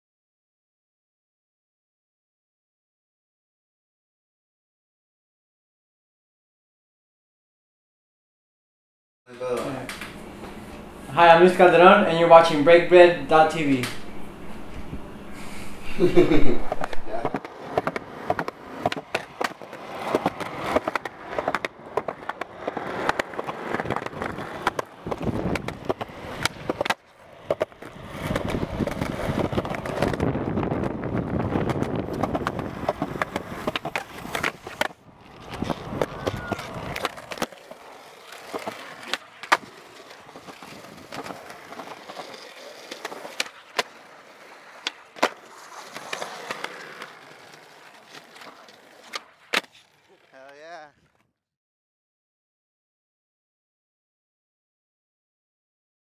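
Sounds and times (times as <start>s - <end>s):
skateboard wheels rolling on concrete: 9.4s - 51.3s
skateboard clacks: 16.7s - 50.6s.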